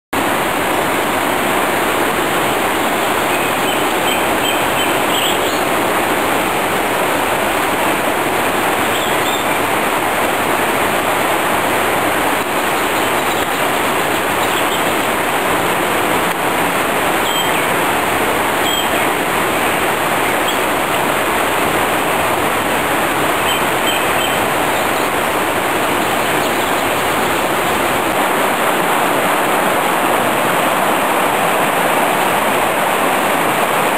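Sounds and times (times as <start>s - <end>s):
stream rushing over rocks: 0.2s - 33.9s.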